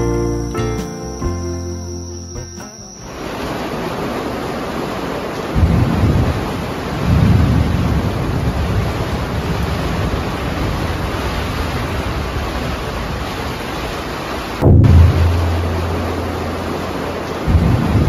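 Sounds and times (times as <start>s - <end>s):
heavy rain on a tent: 3.0s - 18.0s
deep thunder rumbling: 14.6s - 18.0s.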